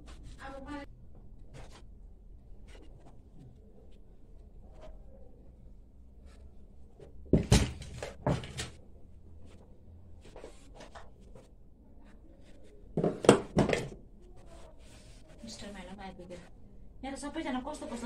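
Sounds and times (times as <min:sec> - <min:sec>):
household objects knocking: 0:07.3 - 0:08.5, 0:13.0 - 0:14.0.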